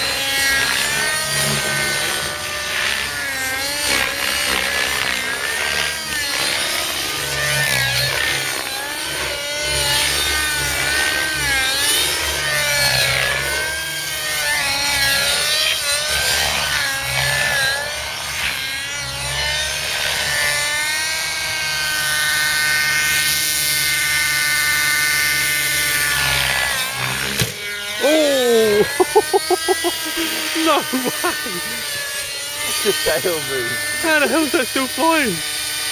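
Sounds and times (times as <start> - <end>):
model helicopter engine whine: 0.0 - 35.9.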